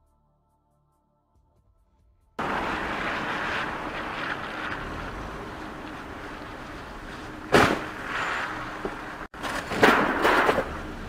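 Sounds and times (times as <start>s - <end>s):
car crash bang: 2.4s - 11.0s
street traffic noise: 2.4s - 11.0s.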